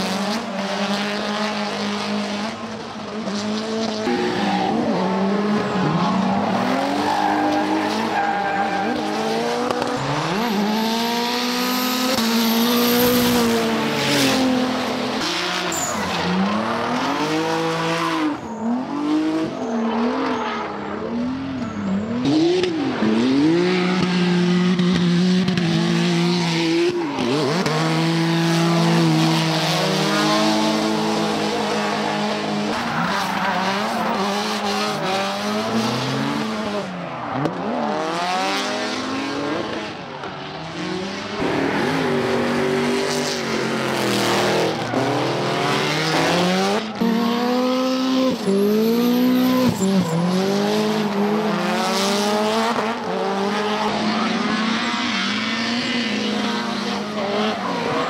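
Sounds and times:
car engines revving: 0:00.0 - 0:58.0
tyre squeal and skidding: 0:04.0 - 0:24.5, 0:26.2 - 0:39.3, 0:48.2 - 0:58.0.

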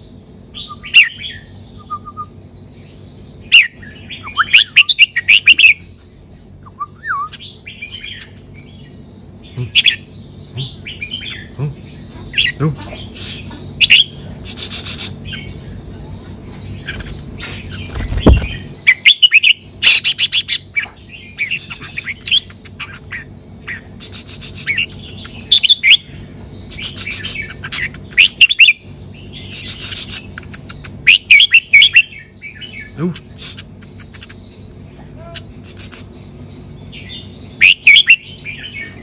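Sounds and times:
bird singing warbling phrases: 0:00.0 - 0:39.0
fast rattling bird notes: 0:16.7 - 0:19.2.

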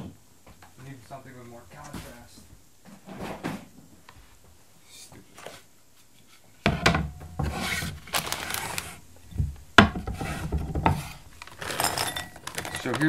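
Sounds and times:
plastic snack bag crinkling: 0:08.0 - 0:09.0, 0:11.3 - 0:13.0
pretzels clattering into glass bowl: 0:11.4 - 0:13.0.

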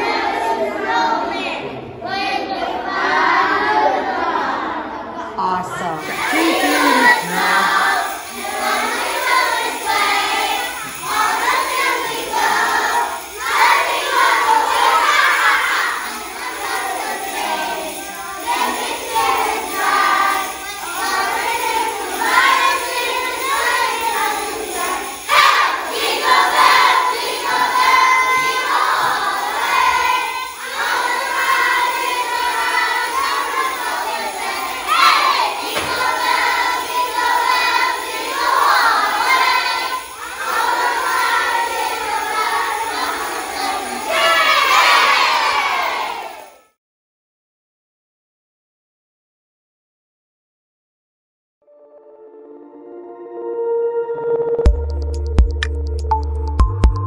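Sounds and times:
children singing: 0:00.0 - 0:46.6.

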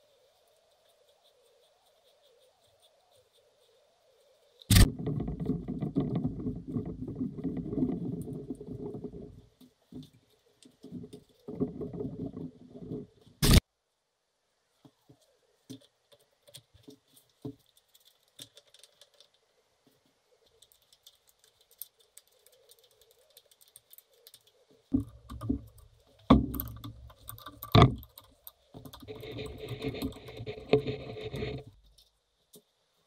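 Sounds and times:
scraping: 0:04.7 - 0:13.6, 0:20.5 - 0:32.2
metal parts clicking and rattling: 0:20.6 - 0:32.1.

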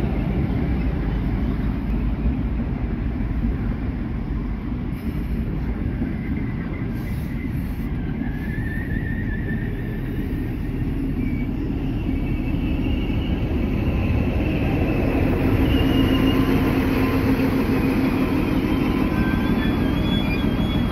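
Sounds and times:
train wheels rumbling on rails: 0:00.0 - 0:20.9
wheel squeals: 0:11.1 - 0:17.6, 0:18.4 - 0:20.9.

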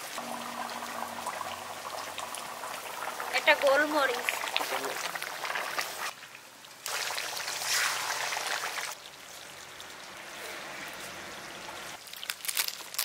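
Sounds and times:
curry boiling and bubbling: 0:00.0 - 0:13.0.

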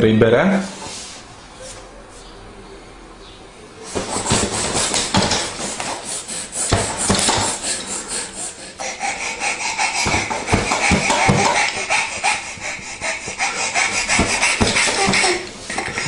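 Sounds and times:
baby laughing and squealing: 0:08.4 - 0:16.0.

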